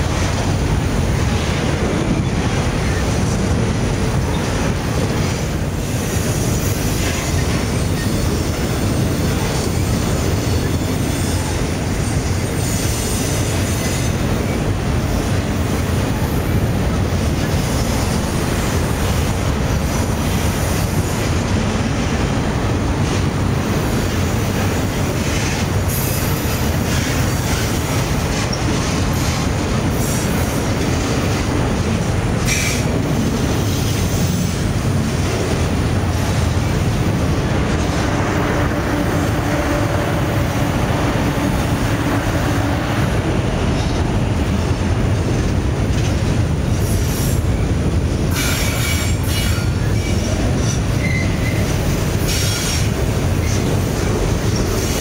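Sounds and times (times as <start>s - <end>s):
train wheels rumbling on rail: 0.0s - 55.0s
wheel squeals: 48.3s - 51.7s.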